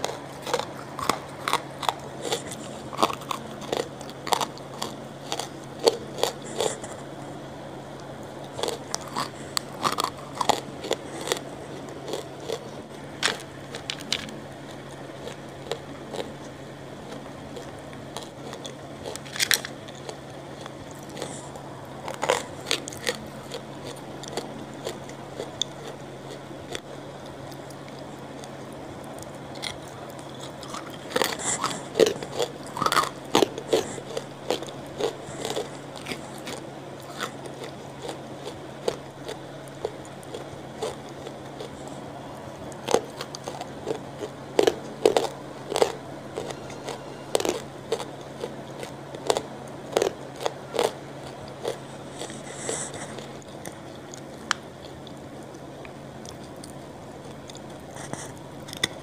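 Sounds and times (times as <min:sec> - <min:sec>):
crunchy bites and chewing: 0:00.0 - 0:07.2, 0:07.8 - 0:59.0.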